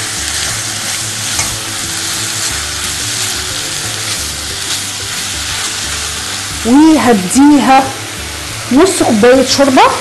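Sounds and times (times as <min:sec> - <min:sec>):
spatula stirring: 0:00.0 - 0:06.8
meat sizzling in a saucepan: 0:00.0 - 0:10.0.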